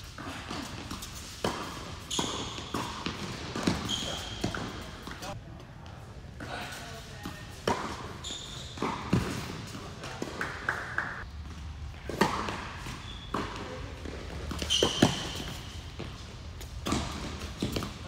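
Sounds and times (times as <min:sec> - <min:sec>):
rackets hitting tennis ball: 0:00.0 - 0:05.4, 0:06.4 - 0:18.0
tennis ball bouncing on hard court: 0:00.2 - 0:05.3, 0:08.8 - 0:18.0.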